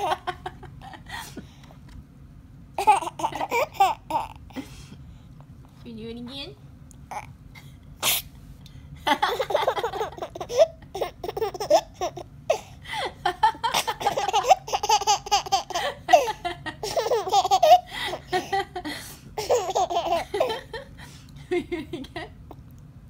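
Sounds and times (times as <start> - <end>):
baby laughing: 0.0 - 0.6, 2.8 - 4.4, 9.2 - 12.7, 13.7 - 18.6, 19.4 - 20.9.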